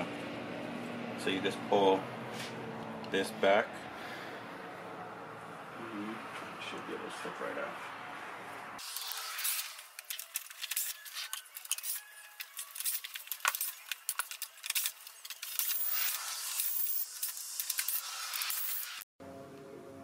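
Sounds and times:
screws and plastic rattling: 8.9s - 19.0s.

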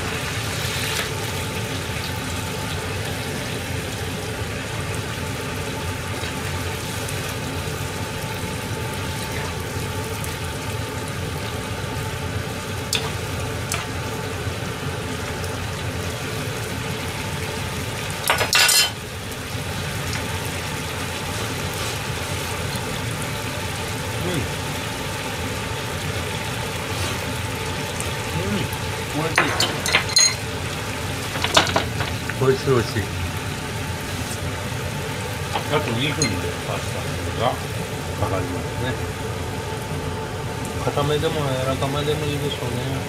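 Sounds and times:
sauce simmering in a pan: 0.0s - 18.3s, 19.0s - 29.2s.

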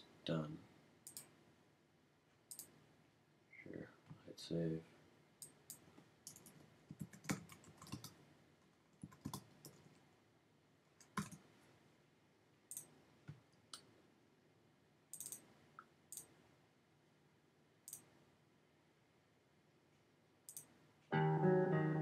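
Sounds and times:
mouse and keyboard clicks: 1.0s - 1.3s, 2.5s - 2.8s, 5.4s - 8.2s, 15.1s - 15.5s, 20.5s - 20.7s.

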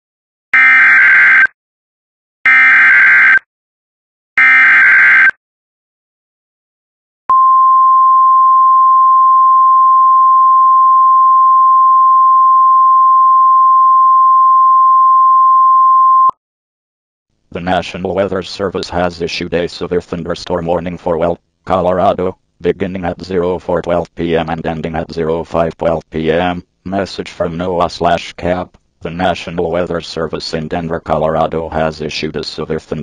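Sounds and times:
long steady high alarm tone: 0.6s - 1.5s, 2.5s - 3.4s, 4.4s - 5.4s.

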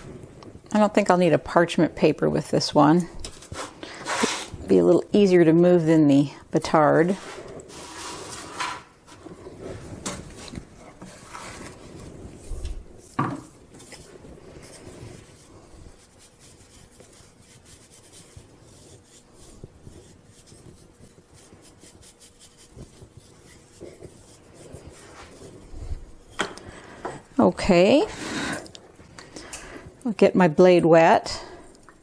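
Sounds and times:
pastry brush sweeping flour: 6.9s - 28.5s.

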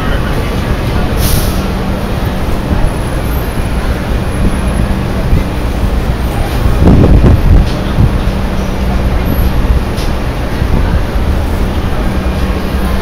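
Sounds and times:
traffic rumble: 0.0s - 13.0s
short sharp hiss: 1.2s - 1.7s.

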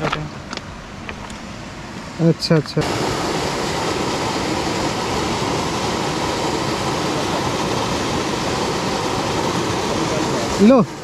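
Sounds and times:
river water rushing over rocks: 2.8s - 11.0s.

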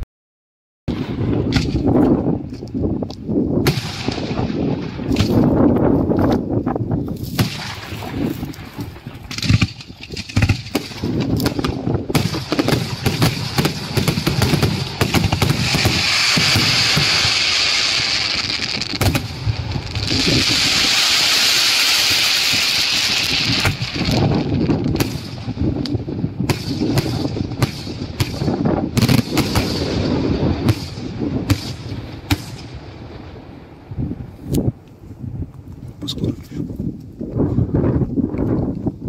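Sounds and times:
fireworks bangs: 3.6s - 6.5s, 7.2s - 34.3s
fireworks hissing: 12.3s - 24.4s.

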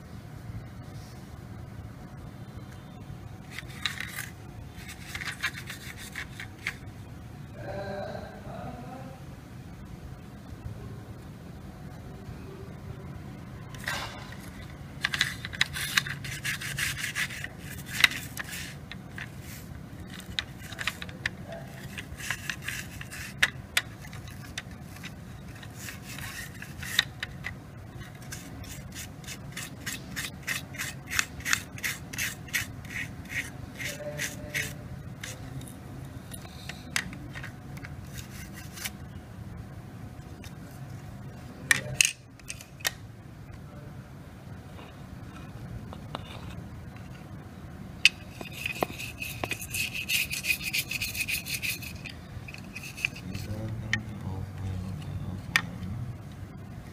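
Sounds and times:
plastic scraping and rubbing: 3.4s - 6.8s, 13.8s - 35.7s, 36.7s - 39.0s, 45.3s - 47.3s, 48.1s - 54.1s.

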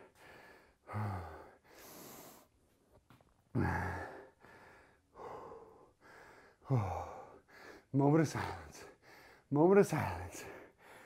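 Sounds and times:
man breathing hard: 0.0s - 2.6s, 3.6s - 7.9s, 8.5s - 9.5s, 10.3s - 11.0s.

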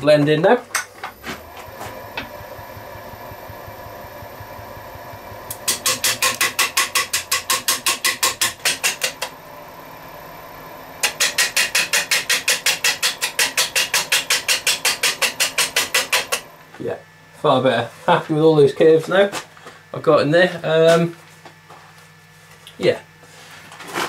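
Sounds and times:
lathe humming: 1.0s - 17.2s
lathe gouge knocking on wood: 1.4s - 9.4s, 11.0s - 16.5s.

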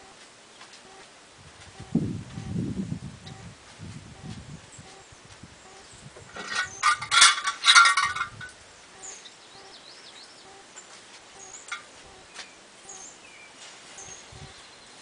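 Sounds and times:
faint high bird chirps: 8.9s - 15.0s.

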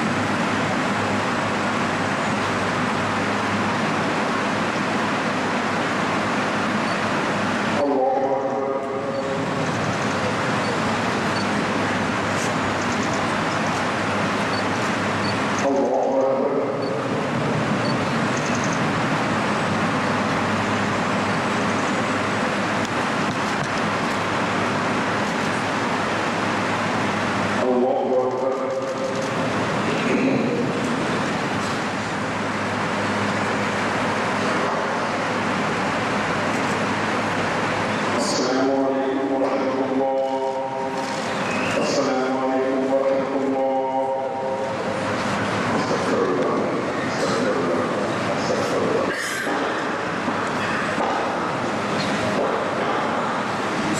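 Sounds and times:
rushing crowd background noise: 0.0s - 53.9s
man chanting a call: 7.7s - 9.6s, 15.6s - 17.2s, 27.6s - 29.2s, 38.1s - 41.0s, 41.7s - 44.9s, 45.7s - 49.8s.

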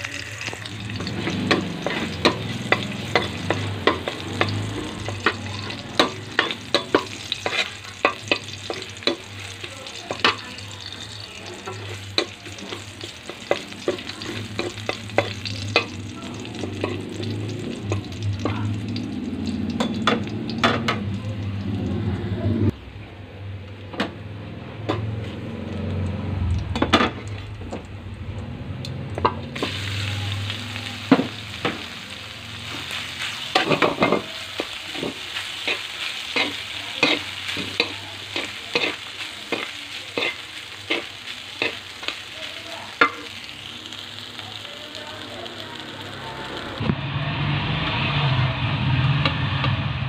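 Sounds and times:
metal spoon scraping pan: 0.0s - 9.5s, 32.7s - 41.9s
food sizzling in pan: 0.0s - 22.7s, 24.8s - 46.9s.

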